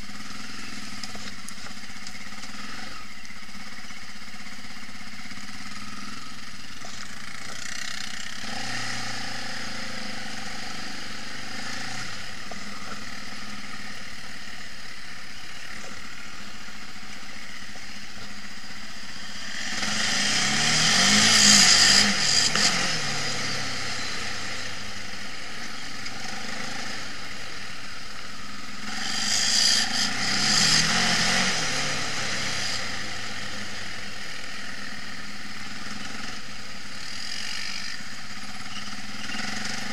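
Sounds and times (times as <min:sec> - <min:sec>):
quad bike engines running: 0:00.0 - 0:39.9
quad bike revving past: 0:07.2 - 0:13.8, 0:19.1 - 0:27.6, 0:28.8 - 0:34.4, 0:35.6 - 0:39.9.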